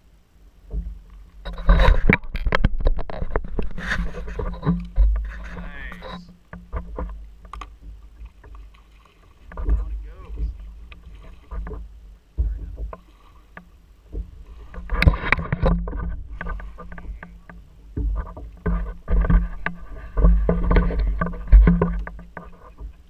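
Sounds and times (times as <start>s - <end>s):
water slapping against kayak hull: 0.6s - 23.0s.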